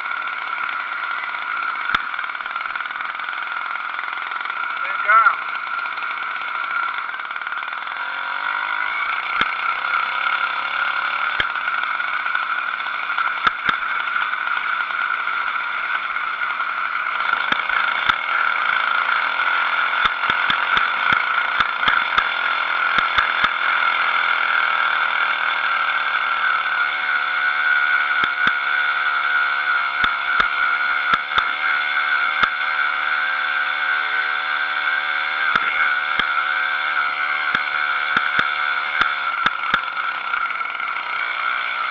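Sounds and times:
two-stroke engine high buzz: 0:00.0 - 0:41.9
bike clicks and knocks: 0:09.2 - 0:09.6, 0:11.3 - 0:11.6, 0:13.1 - 0:15.1, 0:17.2 - 0:18.3, 0:19.8 - 0:23.6, 0:28.2 - 0:28.8, 0:30.0 - 0:31.6, 0:32.3 - 0:32.6, 0:35.4 - 0:36.4, 0:37.4 - 0:40.8.

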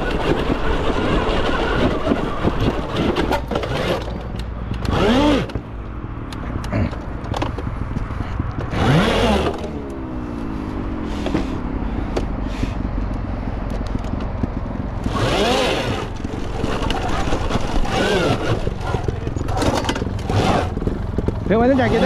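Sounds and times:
bike knocking on loose rock: 0:00.0 - 0:04.8, 0:13.1 - 0:15.3, 0:15.9 - 0:21.9
electric motor whining: 0:00.0 - 0:05.7, 0:08.6 - 0:12.4, 0:15.0 - 0:22.0.

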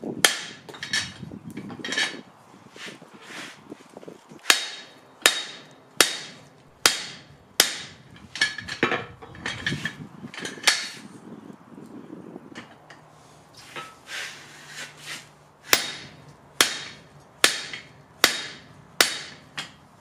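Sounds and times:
light metal clanks: 0:00.6 - 0:02.2, 0:08.1 - 0:11.0
hammer striking metal: 0:04.5 - 0:08.6, 0:15.7 - 0:19.8.

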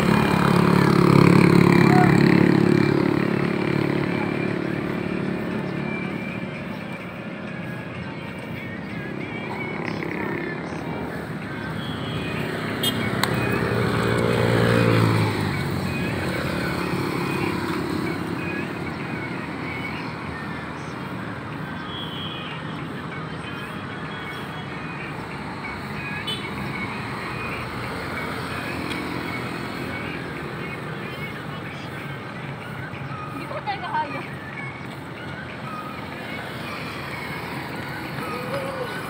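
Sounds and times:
vehicle engine passing by: 0:00.0 - 0:07.8, 0:12.2 - 0:19.8
street traffic noise: 0:00.0 - 0:39.0.

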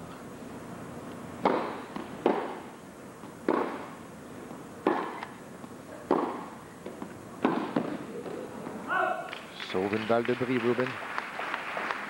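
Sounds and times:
tennis ball bouncing: 0:01.4 - 0:02.6, 0:03.2 - 0:03.9, 0:04.8 - 0:08.4
racquets striking tennis ball: 0:01.4 - 0:04.0, 0:04.8 - 0:08.4.

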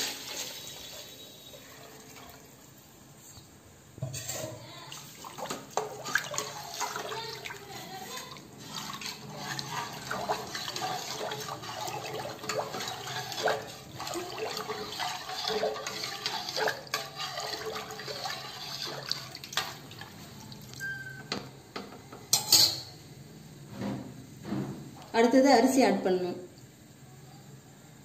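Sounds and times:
liquid sloshing while stirred: 0:04.0 - 0:21.1.

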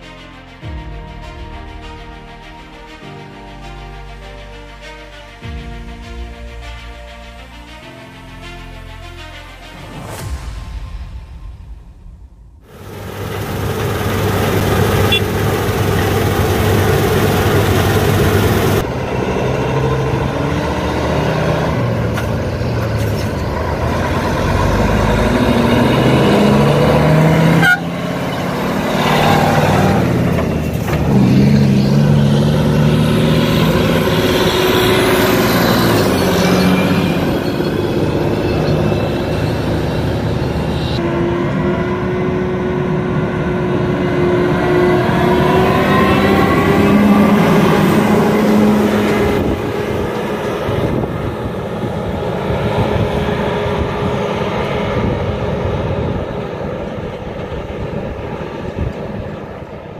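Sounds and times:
combine harvester engine running: 0:12.6 - 0:59.9
truck engine pulling away: 0:12.6 - 0:59.9.

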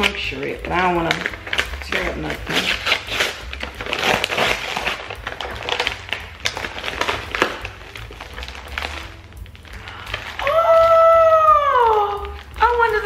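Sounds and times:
plastic packaging crinkling: 0:00.0 - 0:13.0.

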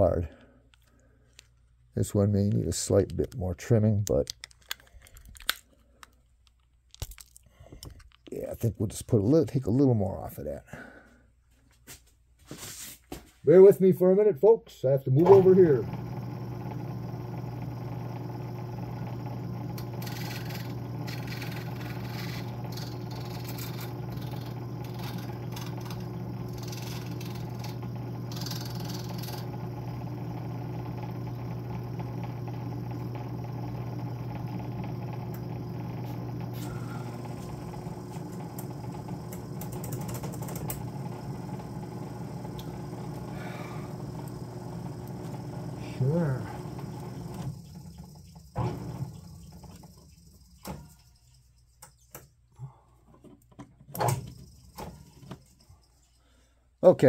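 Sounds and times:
electric grinding tool humming: 0:15.2 - 0:50.0
scratchy grinding on plastic: 0:20.0 - 0:29.5.

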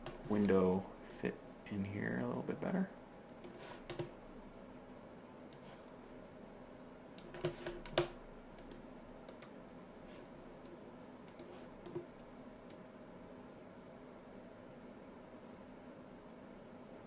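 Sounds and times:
faint room hum: 0:00.0 - 0:17.0.

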